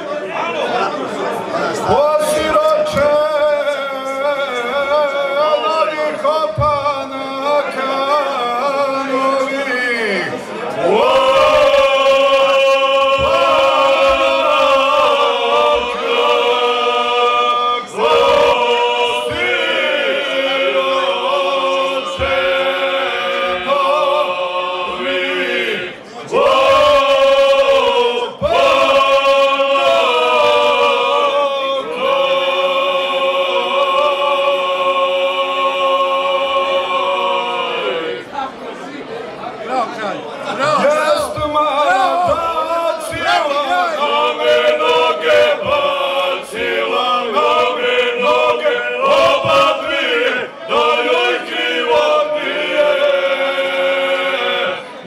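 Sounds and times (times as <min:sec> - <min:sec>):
lead voice on a microphone: 0:00.0 - 0:32.2, 0:39.7 - 0:50.6
men singing a cappella: 0:01.8 - 0:38.2, 0:40.6 - 0:55.0.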